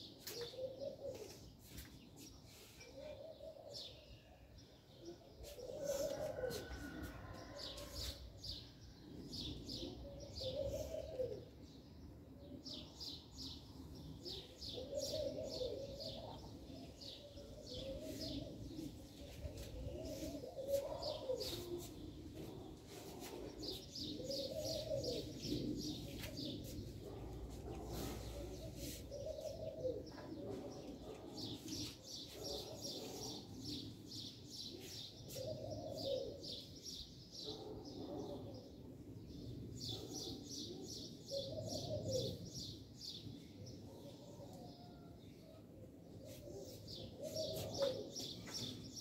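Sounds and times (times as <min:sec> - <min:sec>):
dove cooing: 0:00.0 - 0:01.5, 0:02.8 - 0:04.1, 0:05.2 - 0:08.0, 0:09.4 - 0:11.6, 0:14.2 - 0:31.7, 0:35.2 - 0:36.7, 0:40.7 - 0:42.5, 0:46.4 - 0:48.9
small birds chirping: 0:14.3 - 0:34.0.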